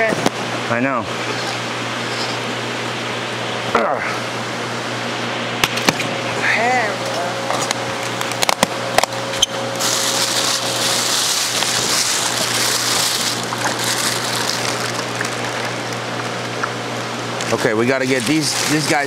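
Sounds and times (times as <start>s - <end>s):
plastic bags rustling and crinkling: 9.7s - 16.2s, 17.8s - 19.0s.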